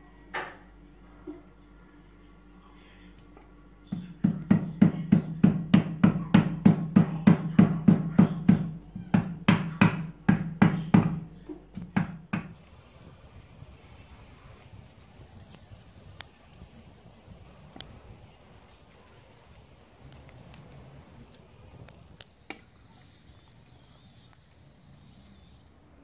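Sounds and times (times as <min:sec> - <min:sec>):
rolling pin knocking on yam: 0:03.9 - 0:12.5.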